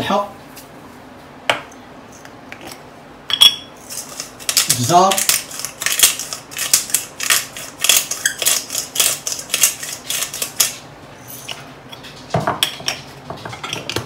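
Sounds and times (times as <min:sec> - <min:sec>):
pepper grinder grinding: 0:03.8 - 0:11.6.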